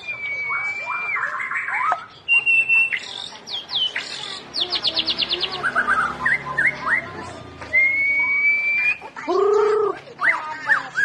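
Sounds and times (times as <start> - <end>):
bird singing whistles: 0.0 - 7.1, 7.7 - 9.0.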